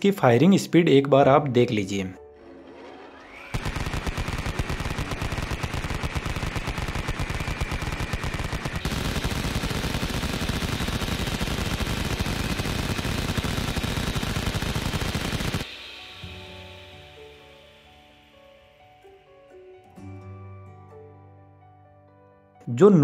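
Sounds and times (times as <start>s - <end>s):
minigun rapid fire: 3.2s - 17.4s.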